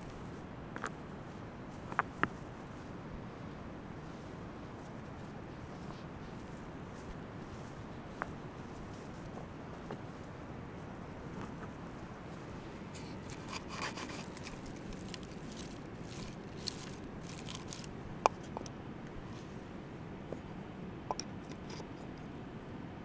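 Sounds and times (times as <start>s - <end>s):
wood shavings scraped by hand: 13.0s - 17.9s.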